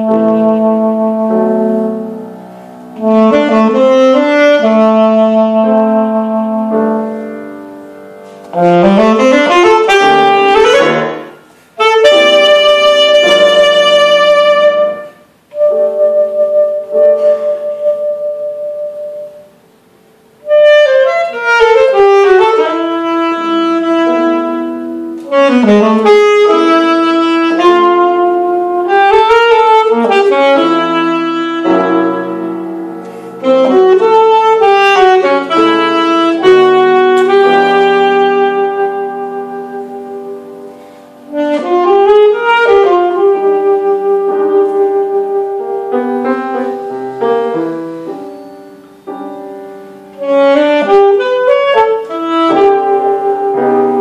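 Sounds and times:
alto saxophone melody: 0.0 - 54.0
piano accompaniment: 0.0 - 54.0.

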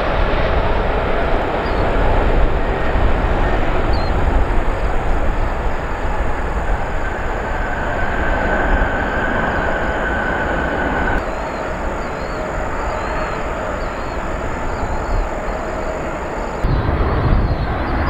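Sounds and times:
airliner jet engine rumble: 0.0 - 18.0
steady whine: 0.0 - 18.0.

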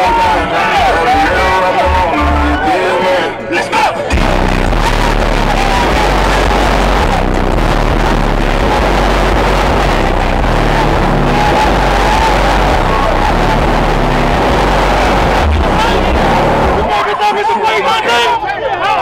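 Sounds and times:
crowd noise: 0.0 - 19.0
car engine at high revs: 4.2 - 16.9.

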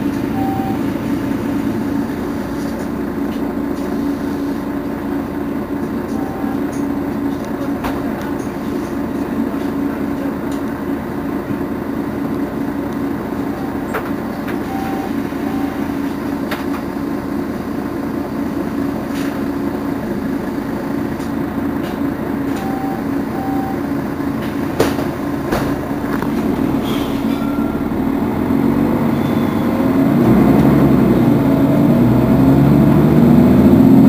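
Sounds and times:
bus engine idling: 0.0 - 34.0
short electronic beeps: 0.2 - 1.1, 6.1 - 6.8, 13.5 - 16.2, 22.5 - 23.9, 27.2 - 27.9, 29.1 - 29.8.

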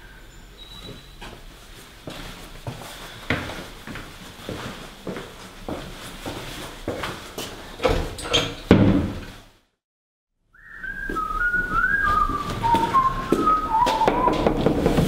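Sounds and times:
sudden thump: 8.7 - 9.2
person whistling a tune: 10.6 - 14.5.

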